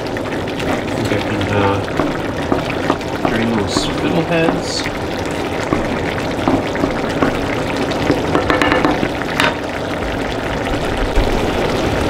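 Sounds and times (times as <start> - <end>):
sauce sizzling in a pan: 0.0 - 12.0.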